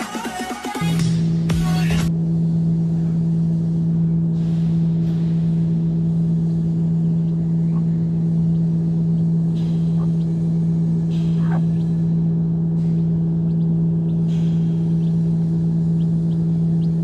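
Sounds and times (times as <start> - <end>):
steady low hum: 0.8 - 17.0.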